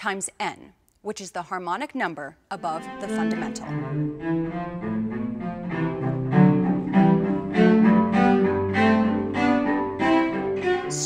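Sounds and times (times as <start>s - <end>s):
bowed cello melody: 2.5s - 11.0s.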